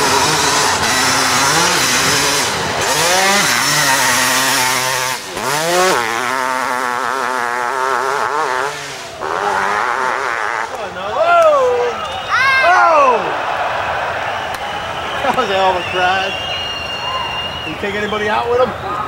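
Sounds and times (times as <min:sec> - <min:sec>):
motorcycle engine revving hard: 0:00.0 - 0:10.9.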